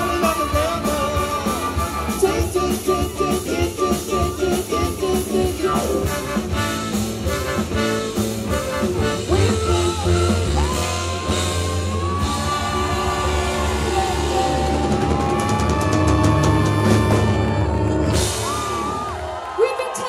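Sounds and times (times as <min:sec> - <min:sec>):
trumpets and trombone: 0:00.0 - 0:15.0
live band playing upbeat song: 0:00.0 - 0:20.0.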